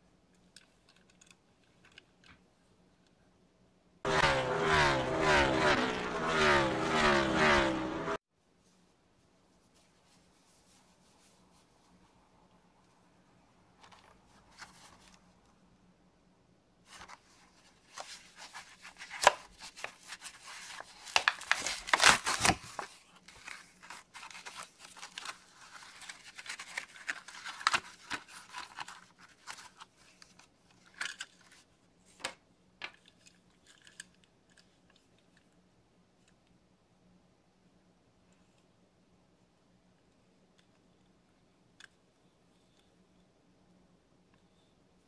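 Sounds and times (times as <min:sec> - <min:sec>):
plastic packaging tearing and crinkling: 0:18.0 - 0:29.8.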